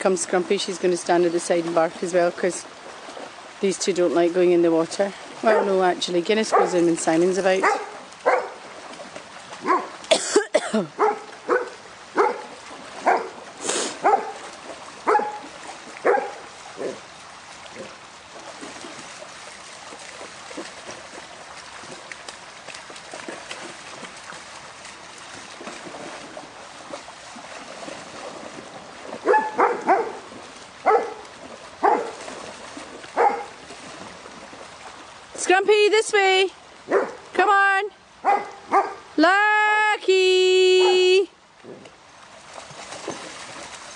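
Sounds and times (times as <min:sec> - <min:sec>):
stream rushing: 0:00.0 - 0:43.9
dog barking: 0:06.5 - 0:06.8, 0:07.6 - 0:08.6, 0:09.6 - 0:09.9, 0:11.0 - 0:13.4, 0:14.0 - 0:14.4, 0:15.0 - 0:15.4, 0:16.0 - 0:17.0, 0:29.2 - 0:30.2, 0:30.8 - 0:31.2, 0:31.8 - 0:32.2, 0:33.2 - 0:33.5, 0:36.9 - 0:37.2, 0:38.2 - 0:39.0.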